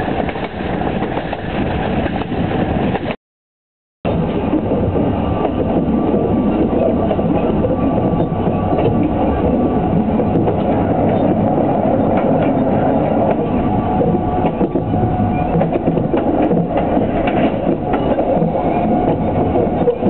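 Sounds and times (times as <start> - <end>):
train rumbling on rails: 0.0 - 3.2, 4.1 - 20.0
wheel clicks over rail joints: 14.4 - 20.0.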